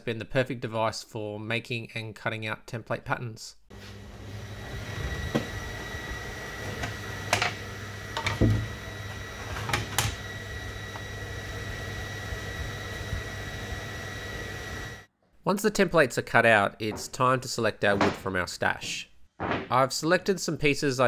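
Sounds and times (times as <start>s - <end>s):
steady machine hum: 3.7s - 15.1s.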